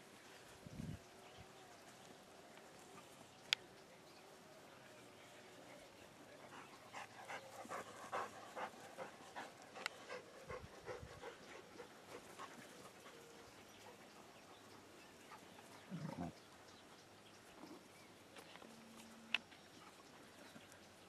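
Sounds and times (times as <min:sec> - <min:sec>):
dogs panting: 0:06.4 - 0:16.0.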